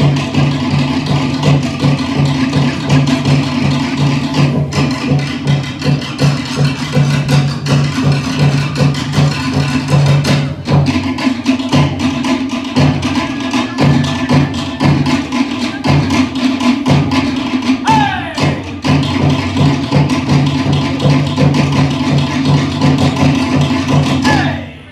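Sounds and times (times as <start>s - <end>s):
steady low drum beat: 0.0s - 24.8s.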